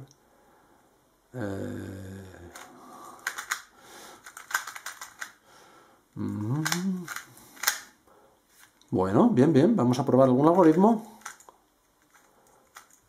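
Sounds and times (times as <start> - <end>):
person humming: 1.3 - 2.8, 6.2 - 7.3
puzzle cube plastic clicks: 2.4 - 5.4, 6.4 - 8.0, 10.6 - 13.0.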